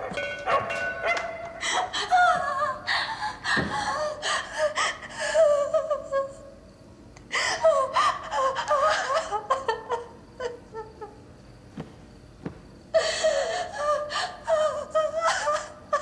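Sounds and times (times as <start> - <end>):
person gasping and breathing hard: 13.0 - 14.4.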